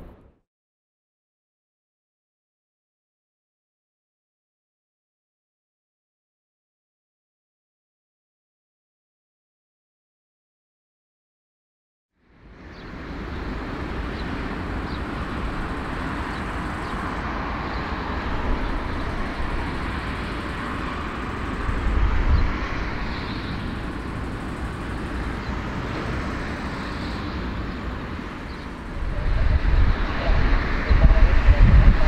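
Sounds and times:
jet engines taxiing: 12.3 - 32.0.

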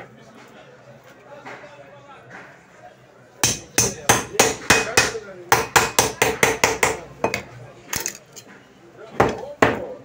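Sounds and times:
cleaver chopping fish on wood: 3.4 - 7.4.

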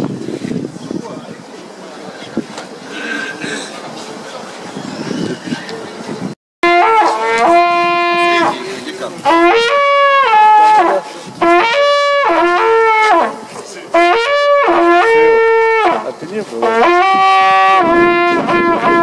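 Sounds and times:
hunting horn calls: 6.6 - 19.0.

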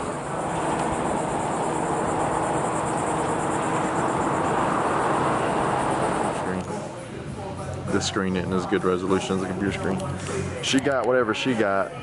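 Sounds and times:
rushing outdoor noise: 0.0 - 6.7
faint steady hum: 0.0 - 7.9.

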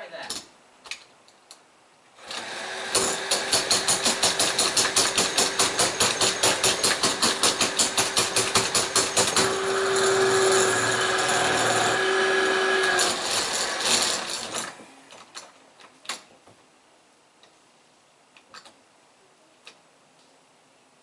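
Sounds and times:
power drill boring into metal: 2.2 - 14.8.

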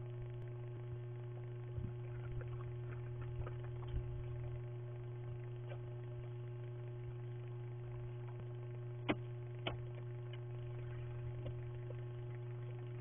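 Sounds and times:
steady electrical hum: 0.0 - 13.0
faint clicks and scrapes: 1.4 - 6.3, 7.9 - 13.0.

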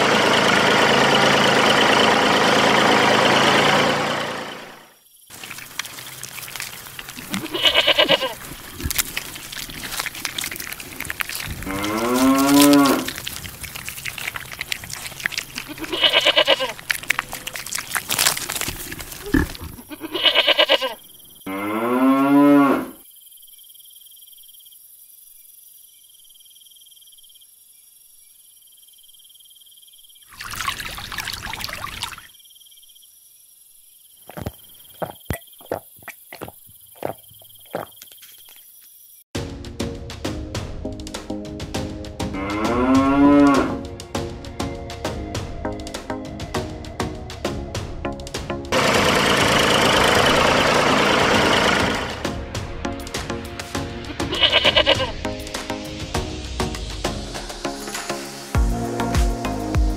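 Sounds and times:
cow mooing: 11.6 - 13.2, 15.7 - 16.8, 19.2 - 23.0, 42.4 - 43.8.

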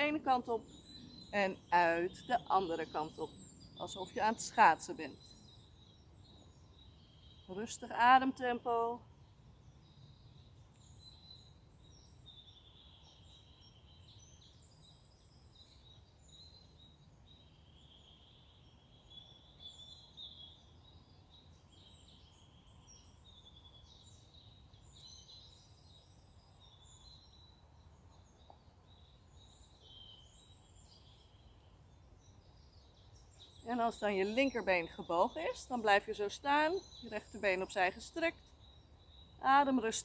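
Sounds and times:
birds chirping: 0.0 - 40.0
low steady hiss: 0.0 - 40.0.

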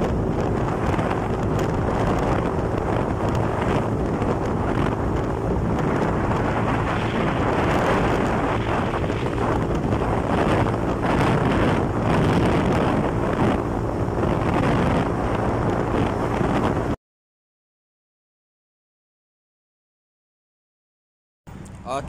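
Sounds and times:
motorcycle engine: 0.0 - 17.0
road noise: 0.0 - 17.0, 21.5 - 22.0
wind on microphone: 0.0 - 17.0.

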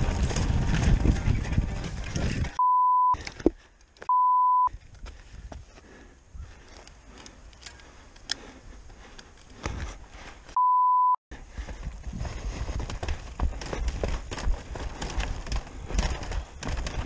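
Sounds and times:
bike chain clicks and rustling: 0.0 - 2.6, 6.5 - 10.0, 12.6 - 17.0
bike rattling: 0.0 - 2.6, 11.5 - 17.0
footsteps running: 0.0 - 2.6, 11.3 - 17.0
censor bleep tone: 2.6 - 3.2, 4.1 - 4.7, 10.6 - 11.2.

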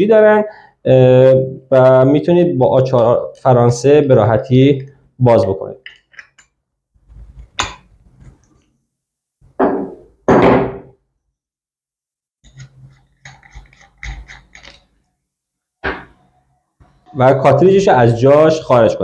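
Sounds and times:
nut clicking and rattling: 12.5 - 14.9.

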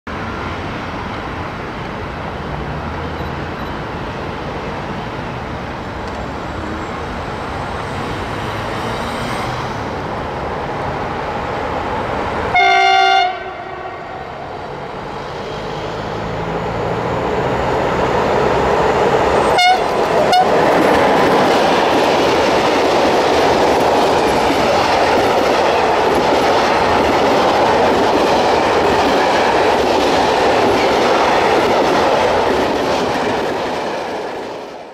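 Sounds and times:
train wheels rumbling on rails: 0.1 - 34.9
locomotive horn blast: 12.5 - 14.2, 19.5 - 20.6.

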